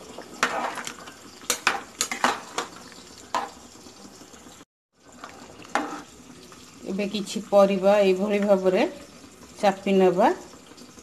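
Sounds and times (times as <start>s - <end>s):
ladle scraping metal pot: 0.3s - 3.6s, 5.2s - 6.1s.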